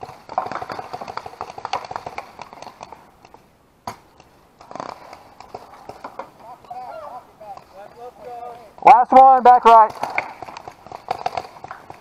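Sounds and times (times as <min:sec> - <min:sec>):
paintball markers popping: 0:09.9 - 0:12.0.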